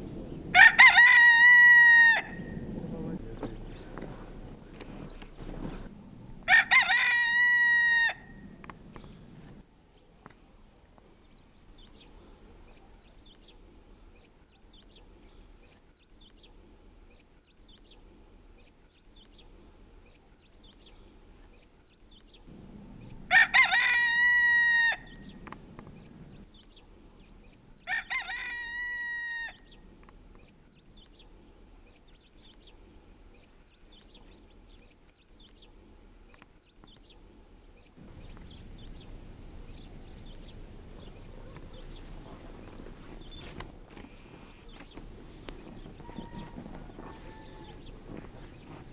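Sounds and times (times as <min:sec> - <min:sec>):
rooster crowing: 0:00.5 - 0:02.7, 0:06.4 - 0:08.5, 0:23.3 - 0:25.4, 0:27.8 - 0:29.7, 0:45.9 - 0:48.1.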